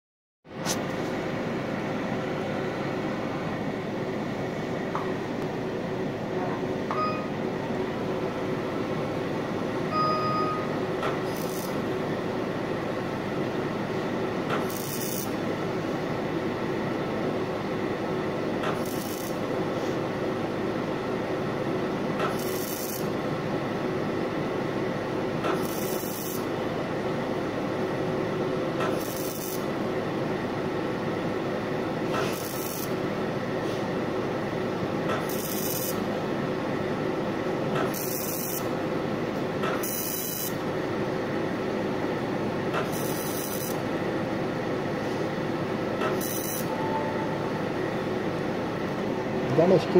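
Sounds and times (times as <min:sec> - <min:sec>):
laser rasping buzz: 0:11.2 - 0:11.8, 0:14.6 - 0:15.4, 0:18.8 - 0:19.4, 0:22.3 - 0:23.1, 0:25.6 - 0:26.5, 0:28.9 - 0:29.7, 0:32.3 - 0:33.0, 0:35.2 - 0:36.0, 0:37.8 - 0:38.7, 0:39.8 - 0:40.6, 0:42.9 - 0:43.8, 0:46.1 - 0:46.8.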